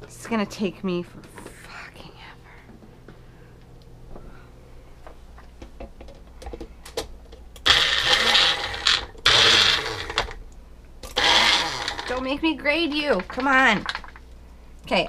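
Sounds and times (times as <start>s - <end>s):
blender motor pulsing: 7.6s - 10.4s, 11.0s - 12.3s.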